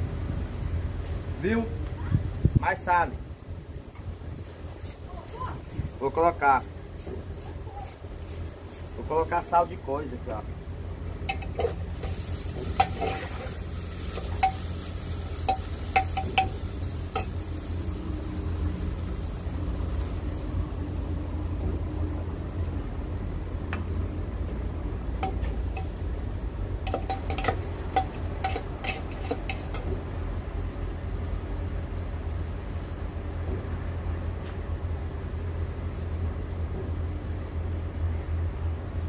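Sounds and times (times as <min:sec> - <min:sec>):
metal pots clinking: 0:11.2 - 0:17.4, 0:25.2 - 0:26.0, 0:26.8 - 0:30.0.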